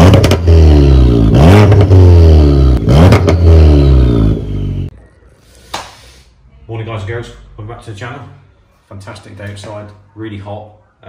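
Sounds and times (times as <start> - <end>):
car engine revving hard: 0.0 - 4.9.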